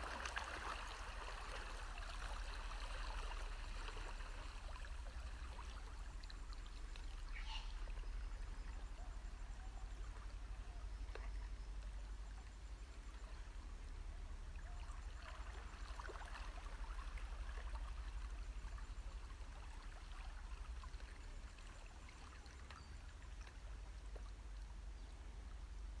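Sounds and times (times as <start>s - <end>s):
small waves lapping on rocks: 0.0s - 7.9s.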